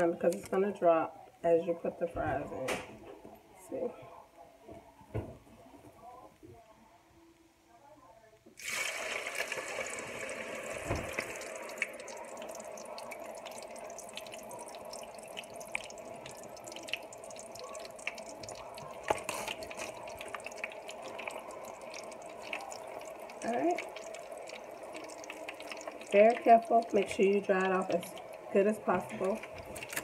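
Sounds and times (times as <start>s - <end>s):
fries sizzling in hot oil: 8.6s - 30.0s.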